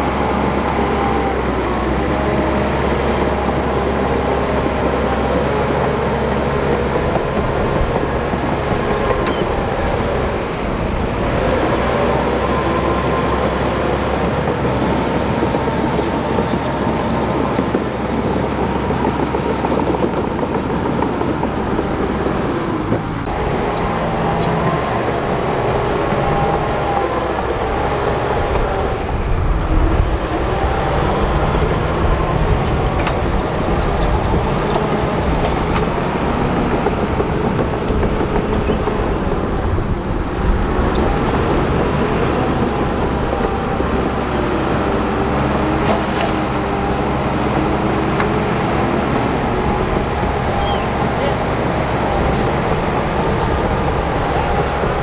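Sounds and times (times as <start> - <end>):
bulldozer diesel engine working: 0.0 - 55.0.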